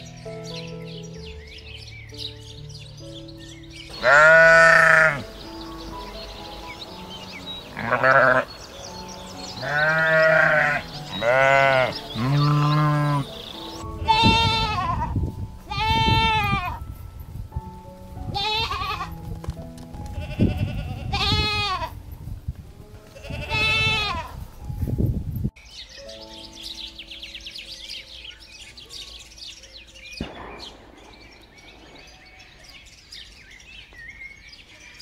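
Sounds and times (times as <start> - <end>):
soft background music: 0.0 - 35.0
animal calling: 3.9 - 15.0.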